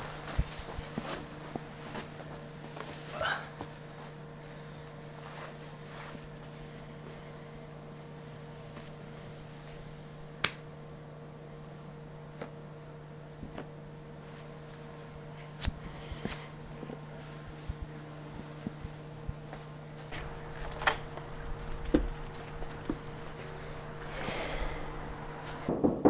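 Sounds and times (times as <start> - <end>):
electrical hum: 0.0 - 26.0.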